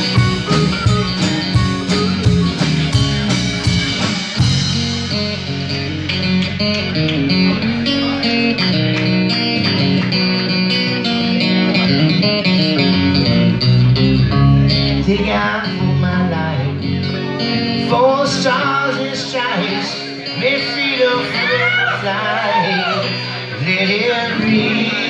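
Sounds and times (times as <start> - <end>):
acoustic guitar: 0.0 - 25.0
bass guitar: 0.0 - 25.0
drums: 0.0 - 25.0
electric guitar: 0.0 - 25.0
man singing: 14.3 - 25.0.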